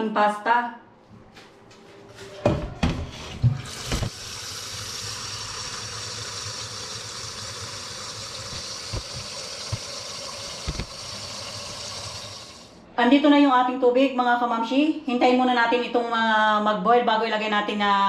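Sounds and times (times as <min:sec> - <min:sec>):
tap running into metal pot: 0:08.4 - 0:11.1.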